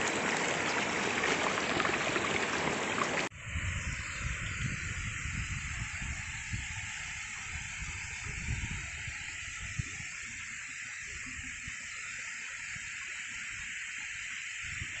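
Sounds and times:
waterfall rushing: 0.0 - 3.3
wind rumble on microphone: 3.1 - 10.4.

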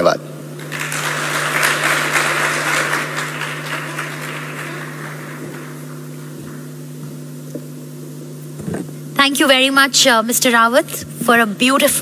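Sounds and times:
steady low hum: 0.0 - 12.0
audience applause: 0.6 - 6.7.

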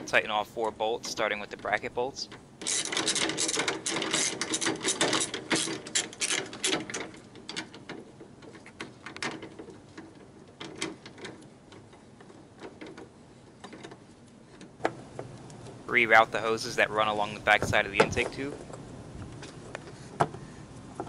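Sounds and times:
ratchet wrench clicking: 2.6 - 6.7.

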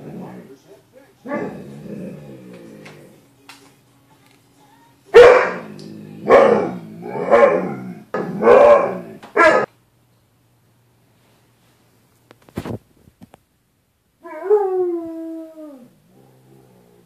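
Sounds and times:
dog barking: 5.2 - 9.7.

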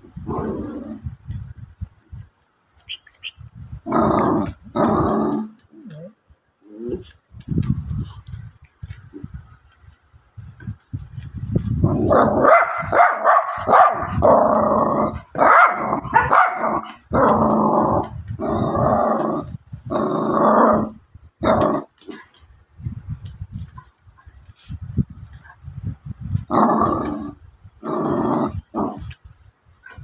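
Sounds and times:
puppy growling: 3.9 - 6.1, 14.0 - 22.1, 26.5 - 29.2
growling barks: 11.8 - 22.3, 26.5 - 29.1.

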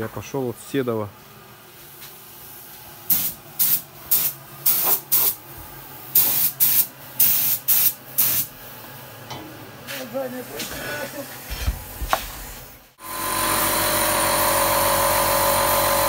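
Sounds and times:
spray gun hissing: 3.1 - 5.4, 6.1 - 8.5.

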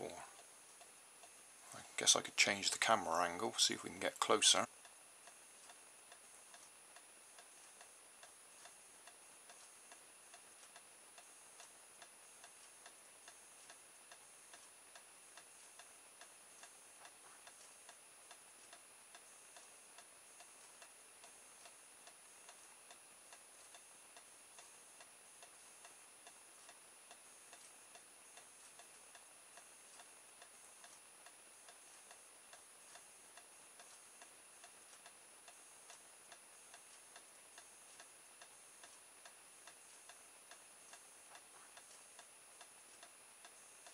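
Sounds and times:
faint regular ticking: 0.0 - 43.9
low hiss: 0.0 - 43.9.

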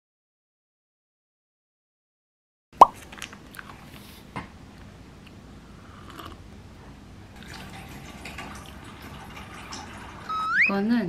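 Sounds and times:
mouth and handling noises: 2.8 - 5.4.

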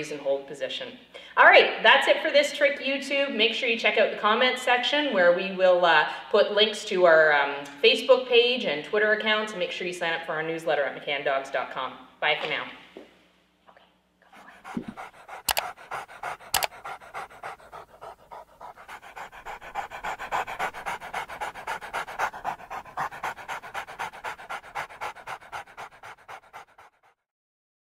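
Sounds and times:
dog panting: 14.3 - 27.2
sharp clicks: 14.8 - 16.8.

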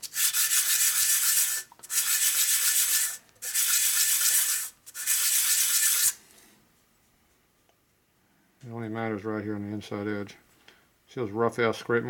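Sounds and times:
metal rubbing on abrasive: 0.0 - 6.2.

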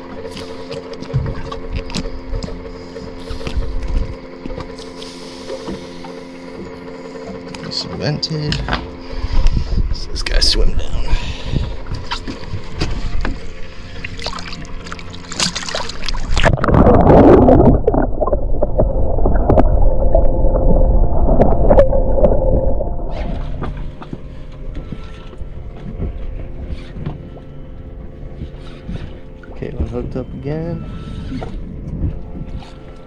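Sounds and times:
underwater rushing hum: 0.0 - 33.0
water splash: 14.0 - 24.1.

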